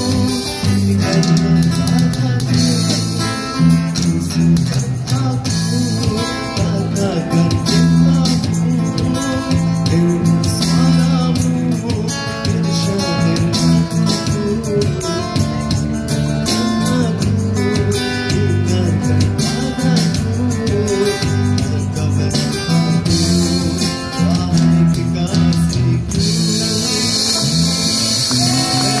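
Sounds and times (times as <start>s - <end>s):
live band playing: 0.0s - 29.0s
high percussion hiss: 26.1s - 29.0s.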